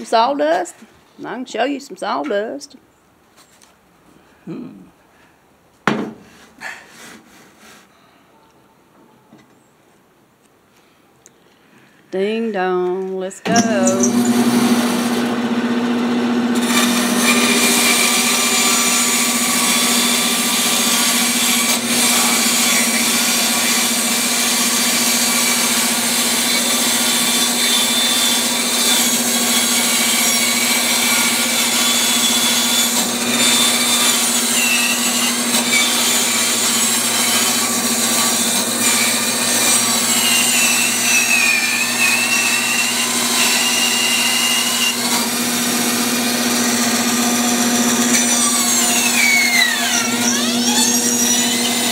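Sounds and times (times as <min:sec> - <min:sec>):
bandsaw cutting wood: 0:13.5 - 0:51.9.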